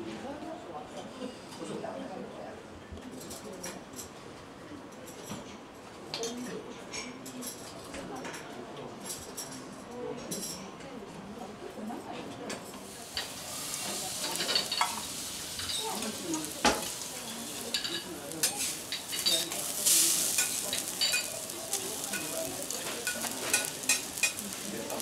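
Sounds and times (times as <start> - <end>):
meat sizzling on a griddle: 12.8 - 25.0
metal spatulas clicking and scraping: 14.2 - 25.0.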